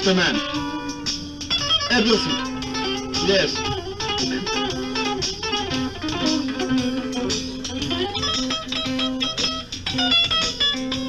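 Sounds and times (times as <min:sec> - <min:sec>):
electric guitar picked notes: 0:00.0 - 0:11.0.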